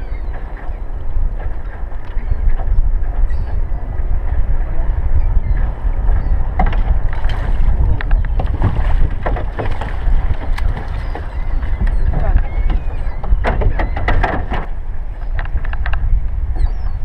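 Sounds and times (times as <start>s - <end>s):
wind and water rumble: 0.0s - 17.0s
knocks against boat: 6.5s - 16.0s.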